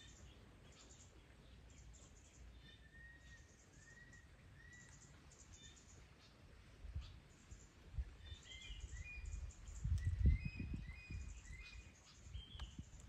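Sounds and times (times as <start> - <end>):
high bird chirps: 8.3 - 12.9.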